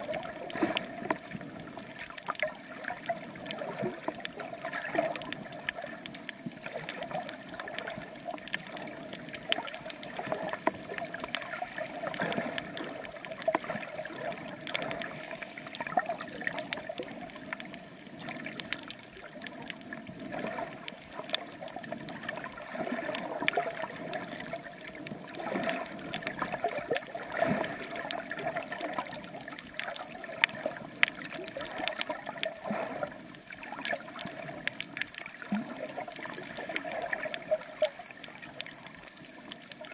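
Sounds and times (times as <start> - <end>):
water sloshing underwater: 0.0 - 39.9
small clicks: 0.2 - 27.2, 27.8 - 32.5.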